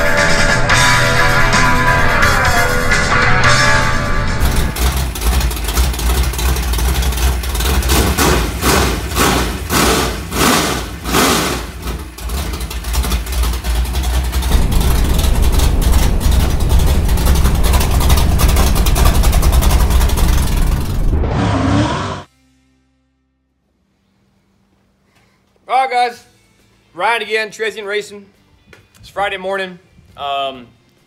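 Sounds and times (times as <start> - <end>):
race car engine surging: 0.0 - 22.3.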